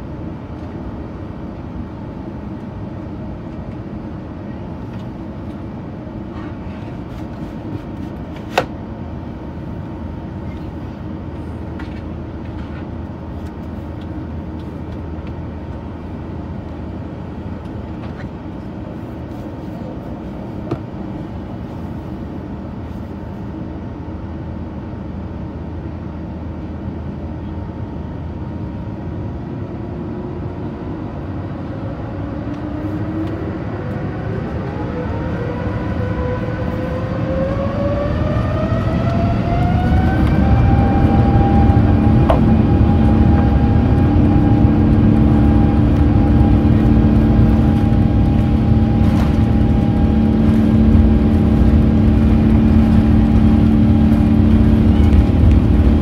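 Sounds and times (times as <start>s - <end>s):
jet engines rumbling with whine: 0.0s - 56.0s
jet engines spooling up: 29.7s - 56.0s.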